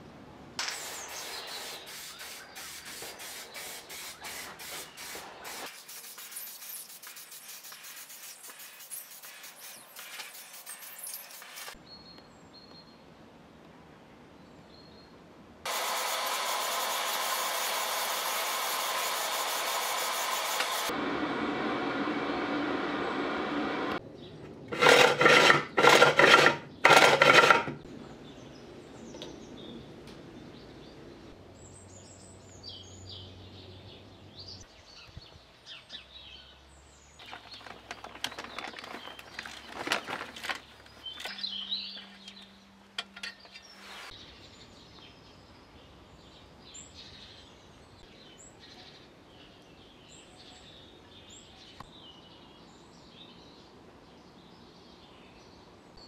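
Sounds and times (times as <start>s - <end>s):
loud bursts of hiss: 0.6s - 11.8s, 15.7s - 20.9s
birds chirping: 0.7s - 13.0s, 31.6s - 45.8s.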